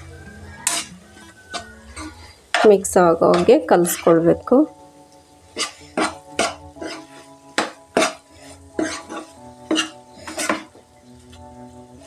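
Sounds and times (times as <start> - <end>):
spatula scraping and clinking pan: 0.5 - 4.3, 5.5 - 10.8.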